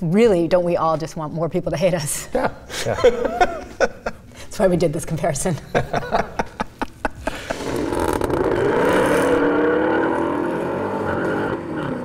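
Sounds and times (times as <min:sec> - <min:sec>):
car engines accelerating hard: 0:07.5 - 0:12.0.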